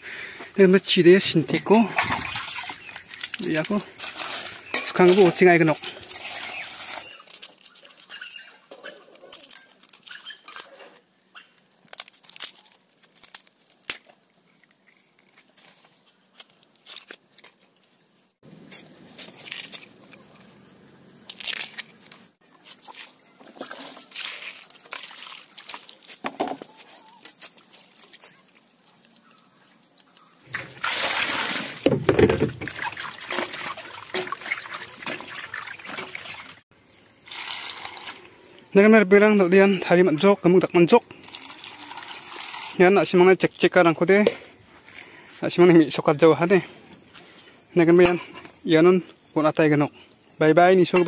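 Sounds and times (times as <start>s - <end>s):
water splashing in steel bowl: 1.8s - 8.1s, 30.5s - 36.6s
bamboo husks tearing: 1.8s - 17.7s, 18.6s - 20.6s, 21.2s - 29.4s.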